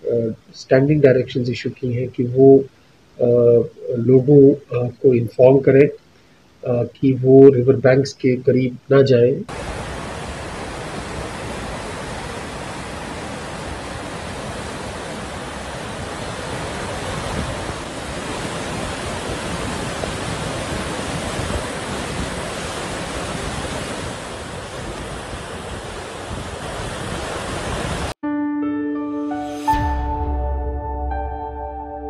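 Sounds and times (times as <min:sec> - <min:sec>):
river rushing: 0:09.5 - 0:28.2.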